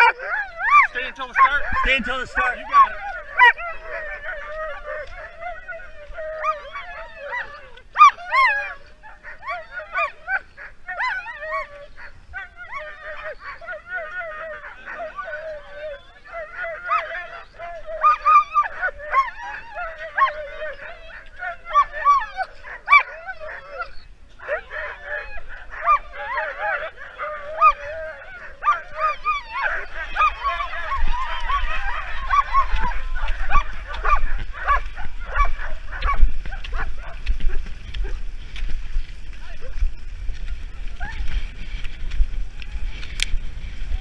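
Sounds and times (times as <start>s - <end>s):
dogs barking and yelping: 0.0s - 38.8s
low rumble: 30.8s - 44.0s.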